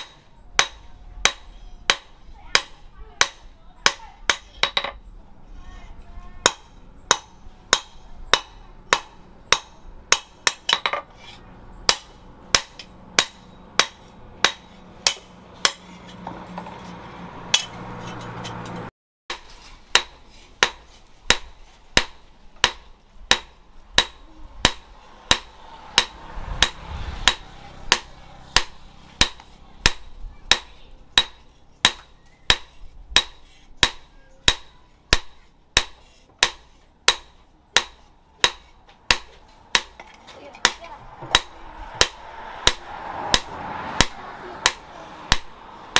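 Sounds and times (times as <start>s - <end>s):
hammer striking steel on anvil: 0.0s - 5.0s, 6.4s - 11.1s, 11.8s - 16.7s, 17.5s - 45.5s.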